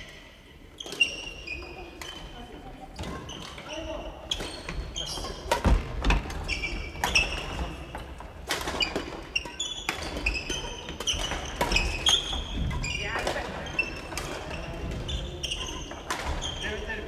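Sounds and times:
sneakers squeaking on wooden floor: 0:00.0 - 0:17.0
racket hitting shuttlecock: 0:04.3 - 0:15.0.

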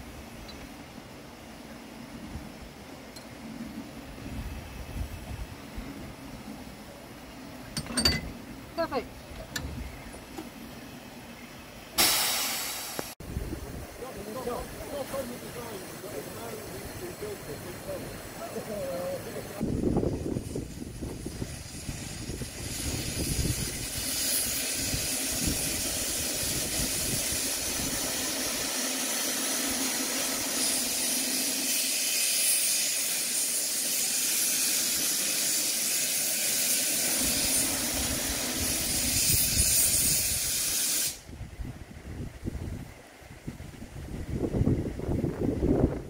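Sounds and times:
steam hissing from locomotive: 0:11.9 - 0:46.0.

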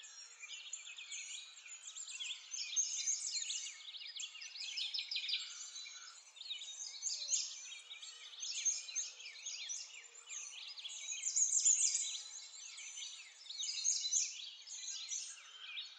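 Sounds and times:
small birds chirping: 0:00.0 - 0:15.9.

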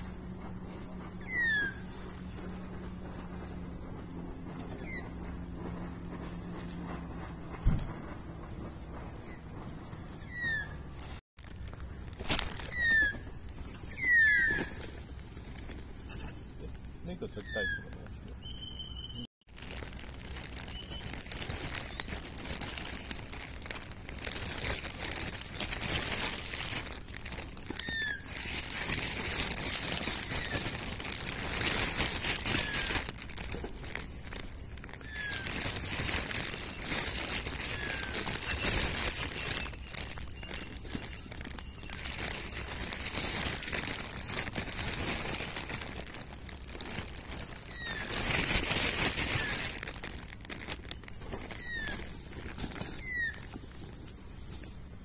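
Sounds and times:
plastic bag crinkling: 0:00.0 - 0:18.2, 0:19.4 - 0:55.0
faint bird chirps: 0:17.3 - 0:19.3.

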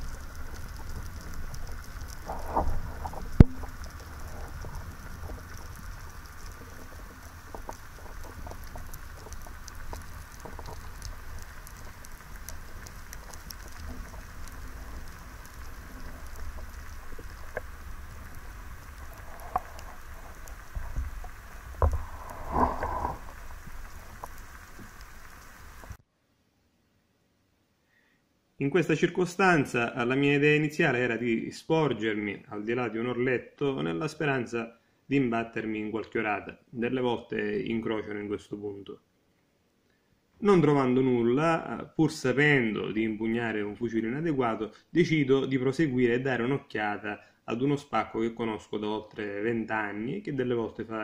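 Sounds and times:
low water rumble: 0:00.0 - 0:26.0
underwater crackling patter: 0:00.0 - 0:26.0.

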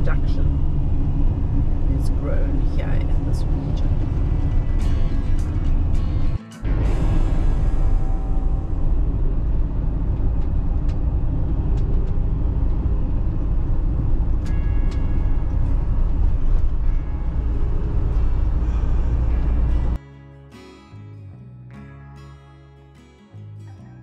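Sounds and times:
van engine and road rumble: 0:00.0 - 0:20.0
short higher tone: 0:06.3 - 0:10.4.

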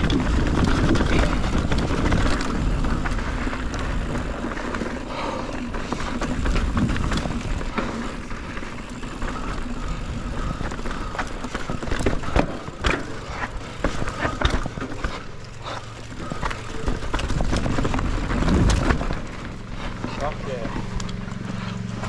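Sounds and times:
bike clacking and rattling: 0:00.0 - 0:22.0
wind and tyre noise: 0:00.0 - 0:22.0.

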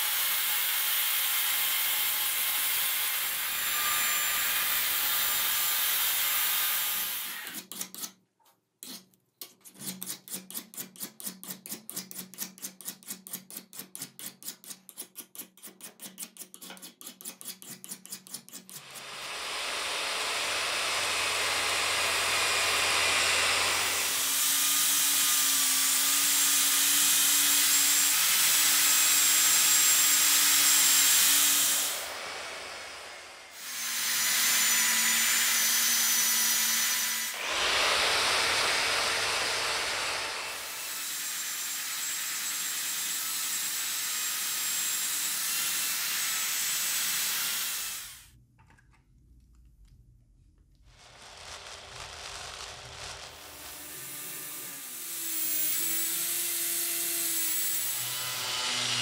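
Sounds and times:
hand file scraping steel: 0:07.1 - 0:08.2, 0:08.8 - 0:19.1.

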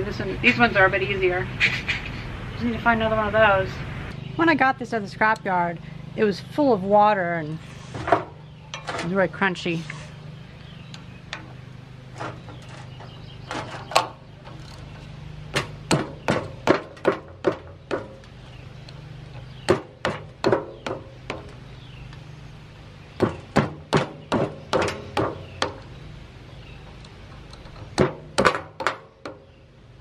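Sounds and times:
steady low hum: 0:00.0 - 0:30.0
sharp metal knocks: 0:12.2 - 0:18.4, 0:19.4 - 0:21.6, 0:23.2 - 0:26.0, 0:26.8 - 0:29.5.

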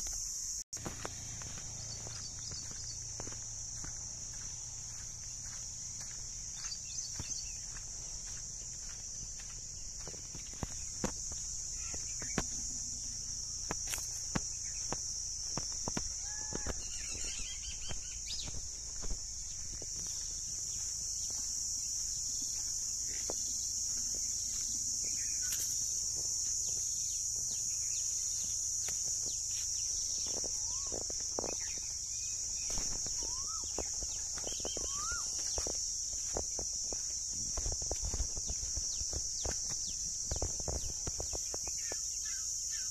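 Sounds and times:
footsteps on sandy ground: 0:00.0 - 0:42.7
high-pitched insect drone: 0:00.0 - 0:42.9
birds calling: 0:00.8 - 0:25.8, 0:29.2 - 0:37.0.

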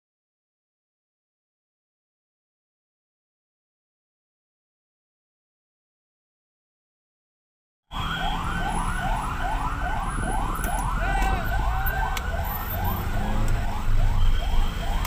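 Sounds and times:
ambulance siren yelping: 0:07.9 - 0:15.0
road traffic rumble: 0:07.9 - 0:15.0.

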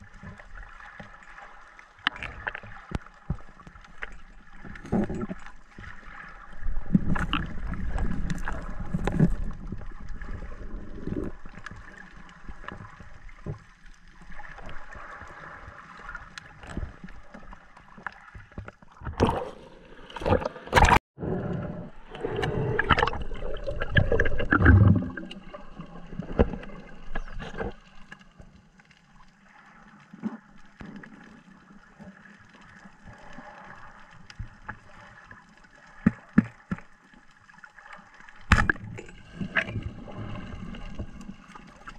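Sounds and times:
water rushing and gurgling: 0:00.0 - 0:41.9.

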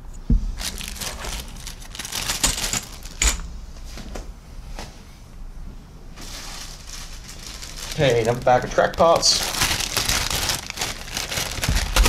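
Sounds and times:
plastic bag crinkling: 0:00.6 - 0:03.4, 0:06.2 - 0:12.0.

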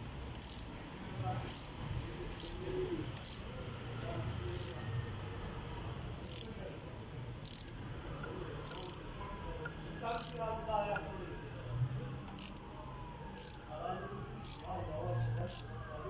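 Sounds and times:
ratchet clicking: 0:00.3 - 0:00.8, 0:01.4 - 0:03.5, 0:04.2 - 0:04.9, 0:06.0 - 0:06.6, 0:07.4 - 0:07.8, 0:08.6 - 0:09.0, 0:10.0 - 0:10.5, 0:12.2 - 0:12.7, 0:13.4 - 0:13.6, 0:14.4 - 0:14.8, 0:15.4 - 0:15.7.

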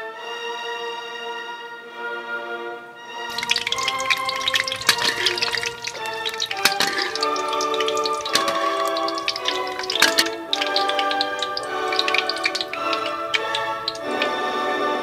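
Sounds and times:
egg frying in hot oil: 0:03.3 - 0:14.4.

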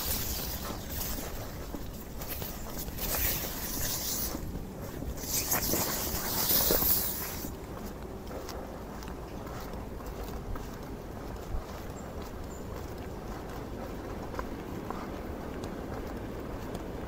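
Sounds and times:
wet street hiss in rain: 0:00.0 - 0:07.6.

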